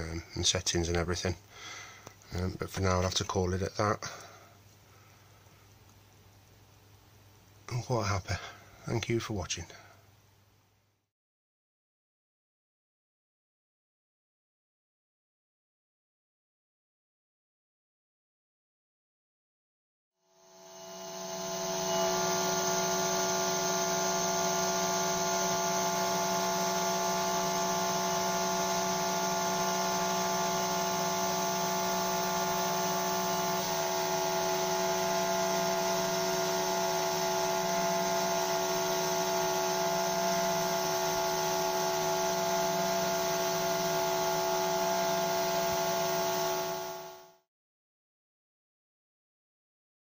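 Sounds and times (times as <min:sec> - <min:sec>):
spindle motor whining: 0:20.5 - 0:47.4.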